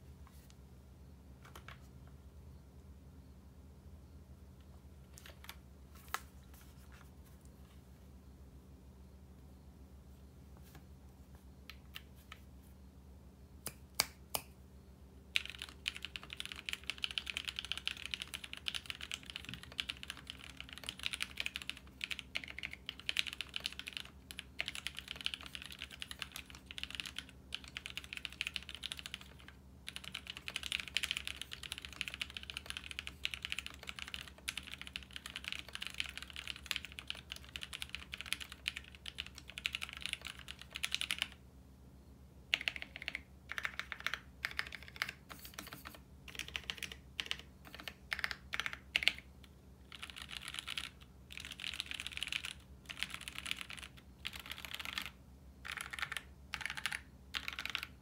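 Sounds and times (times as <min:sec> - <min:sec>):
typing on mechanical keyboard: 0:01.4 - 0:01.9, 0:05.1 - 0:06.3, 0:15.3 - 0:41.4, 0:42.5 - 0:58.0.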